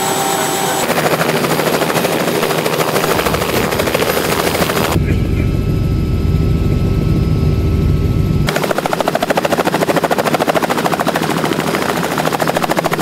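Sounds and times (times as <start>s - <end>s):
helicopter rotor blade slap: 0.6s - 5.6s, 8.5s - 13.0s
low rumble: 3.0s - 8.5s.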